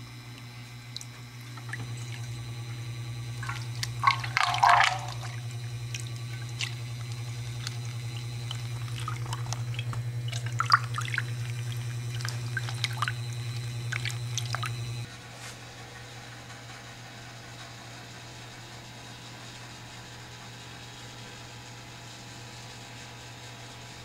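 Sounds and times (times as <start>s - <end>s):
stirrer motor humming: 0.0s - 15.1s
liquid splashing and dripping: 0.9s - 2.5s, 3.2s - 15.1s.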